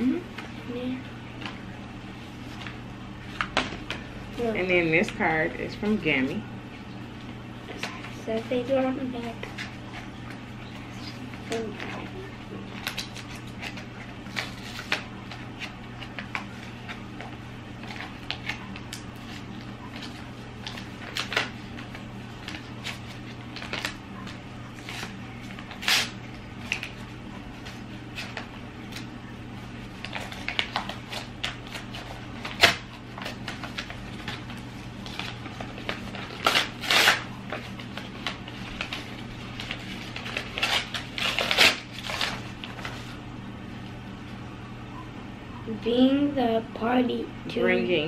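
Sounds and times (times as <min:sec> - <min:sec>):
steady low hum: 0:00.0 - 0:48.0
paper rustling and crinkling: 0:07.3 - 0:43.2.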